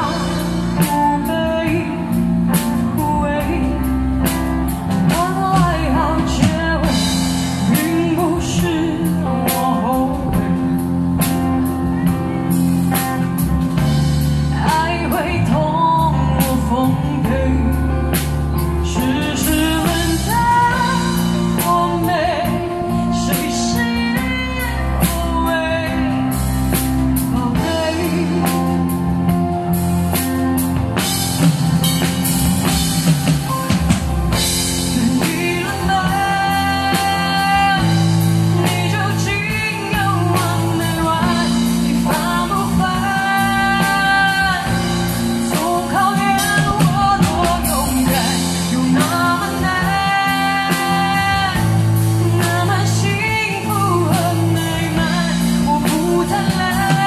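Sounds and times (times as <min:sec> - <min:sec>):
woman singing: 0:00.0 - 0:30.7, 0:34.3 - 0:57.0
drums: 0:00.0 - 0:57.0
electric guitar: 0:00.0 - 0:57.0
keyboard: 0:00.0 - 0:57.0.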